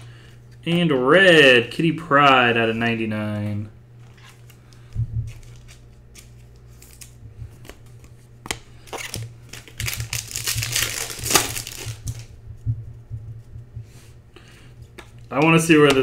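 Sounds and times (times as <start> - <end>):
plastic wrapper crinkling: 8.8 - 12.3.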